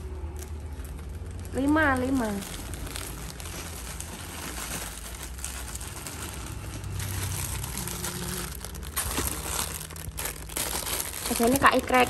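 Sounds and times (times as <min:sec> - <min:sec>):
plastic packs crinkling: 0:00.0 - 0:12.0.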